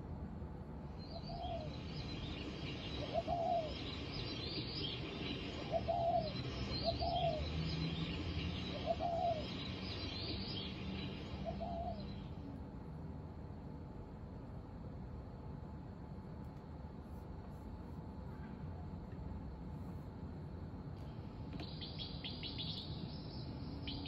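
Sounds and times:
small birds chirping: 0:00.9 - 0:12.4, 0:21.0 - 0:24.0
dove cooing: 0:03.0 - 0:03.8, 0:05.4 - 0:07.5, 0:08.7 - 0:09.5, 0:11.4 - 0:12.0.

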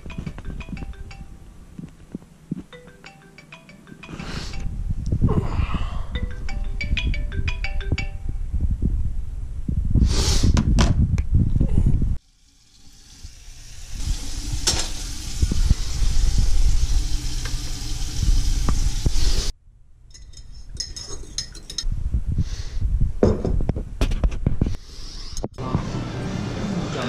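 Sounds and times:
frying hiss: 0:12.2 - 0:19.5
dishes clinking: 0:20.1 - 0:21.9
spoon clinking against mug: 0:20.1 - 0:21.9.

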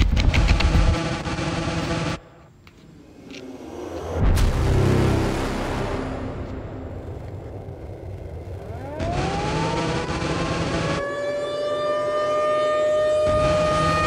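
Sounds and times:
low noise: 0:01.0 - 0:10.0
siren-like wail: 0:03.0 - 0:14.0.

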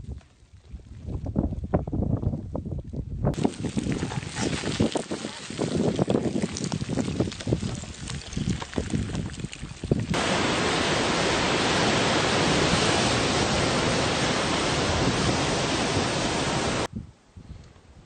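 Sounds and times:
rushing hiss of surf and steam: 0:10.2 - 0:16.9.

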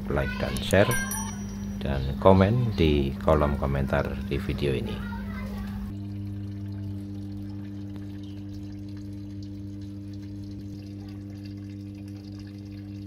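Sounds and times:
water pouring into washing machine: 0:03.3 - 0:13.0.

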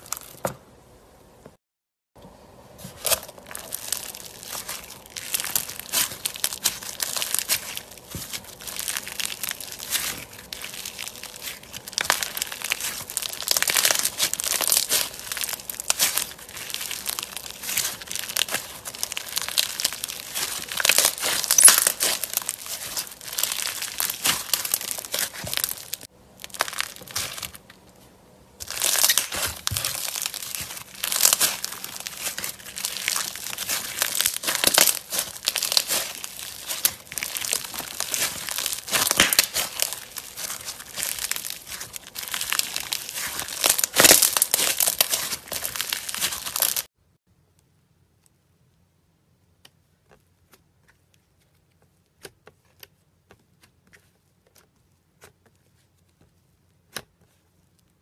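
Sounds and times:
bead slime crackling: 0:00.0 - 0:00.4, 0:02.9 - 0:27.9, 0:28.6 - 0:46.9.

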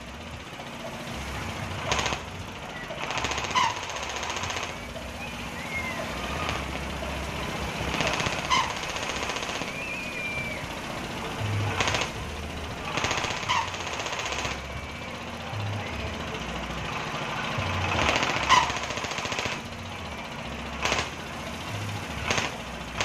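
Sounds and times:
diesel engine exhaust rattling: 0:00.0 - 0:23.0.

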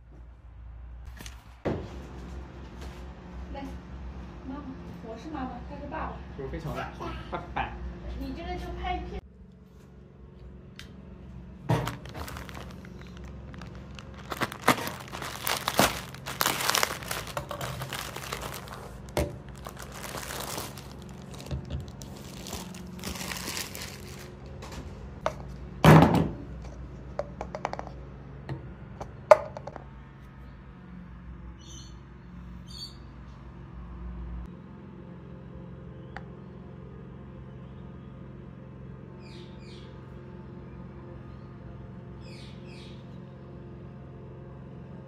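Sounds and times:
items knocking when put down: 0:11.7 - 0:12.8
plastic bags crinkling and tearing: 0:11.7 - 0:24.6.

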